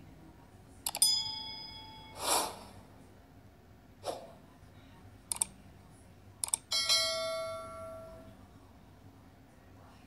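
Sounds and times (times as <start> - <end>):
bright bell ding: 1.0 - 2.2
mouse clicks: 5.3 - 5.5, 6.4 - 6.6.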